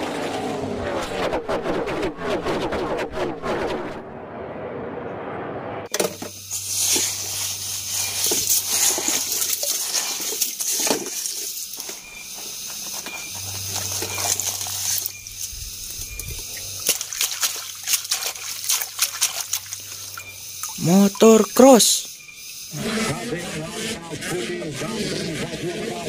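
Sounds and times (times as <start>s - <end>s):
muddy water splashing: 6.8s - 11.9s, 13.4s - 21.6s.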